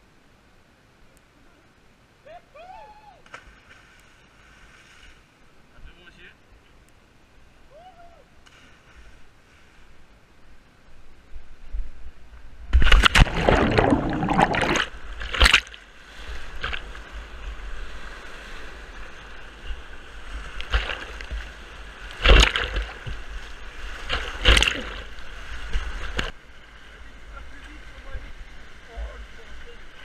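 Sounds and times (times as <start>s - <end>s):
water splashing over microphone: 12.7s - 17.4s, 19.8s - 26.4s.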